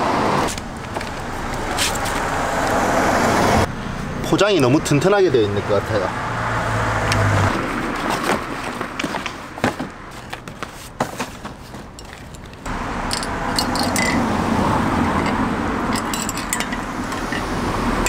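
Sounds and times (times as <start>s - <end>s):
road traffic noise: 0.0s - 18.0s
cardboard packaging clicks and scrapes: 7.8s - 12.6s.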